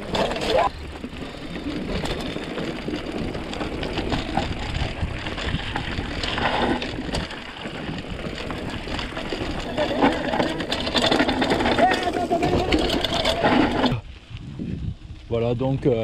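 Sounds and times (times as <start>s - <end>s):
bike tyre and drivetrain rattle: 0.0s - 16.0s
wind rumble on microphone: 0.0s - 16.0s.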